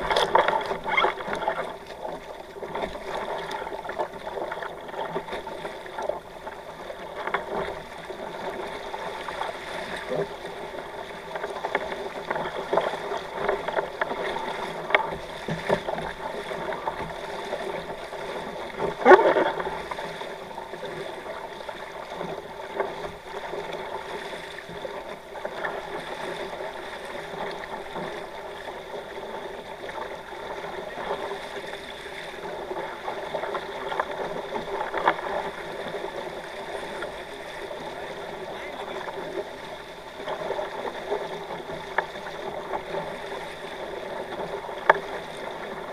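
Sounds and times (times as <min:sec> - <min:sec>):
water rushing along hulls: 0:00.0 - 0:45.9.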